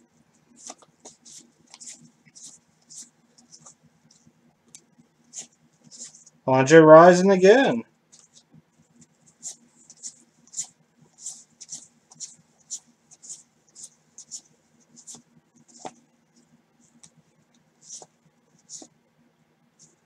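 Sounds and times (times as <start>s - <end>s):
cardboard cards swishing: 0.5s - 3.8s, 15.0s - 16.0s, 17.8s - 18.9s.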